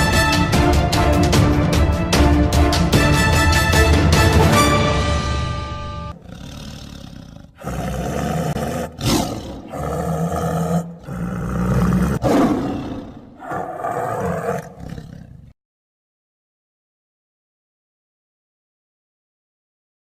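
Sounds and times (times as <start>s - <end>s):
big cat roaring: 6.1s - 15.6s.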